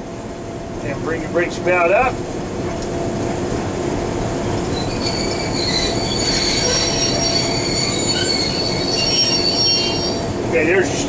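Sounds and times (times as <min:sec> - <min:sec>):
low rumble in cab: 0:00.0 - 0:04.7
train brakes squealing: 0:04.7 - 0:10.4.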